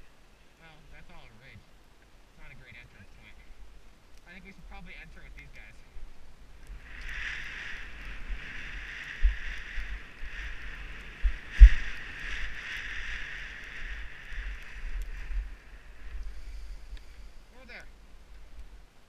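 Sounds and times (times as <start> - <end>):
wind buffeting microphone: 4.7 - 18.8
skis hissing over snow: 6.8 - 17.4.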